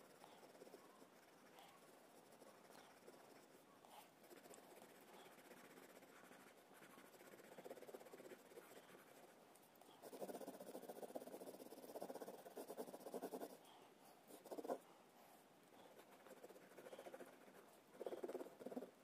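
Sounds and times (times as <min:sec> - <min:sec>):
pencil scribbling on paper: 0:00.0 - 0:09.4, 0:10.0 - 0:13.7, 0:14.3 - 0:14.8, 0:15.8 - 0:18.9.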